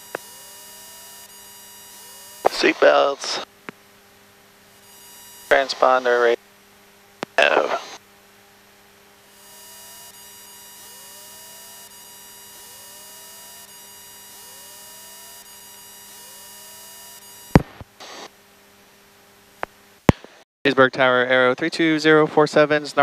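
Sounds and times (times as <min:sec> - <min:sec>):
radio static hiss: 0:01.9 - 0:03.5, 0:04.8 - 0:06.4, 0:07.2 - 0:08.0, 0:17.5 - 0:18.3.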